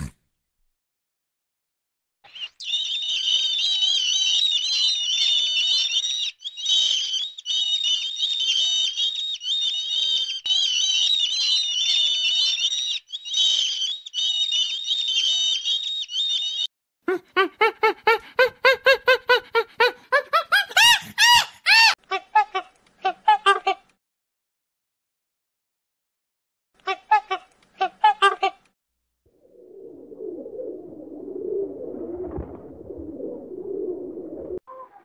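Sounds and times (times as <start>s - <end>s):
seabirds calling: 2.3s - 22.0s
animal rapid pitched calls: 17.6s - 22.0s.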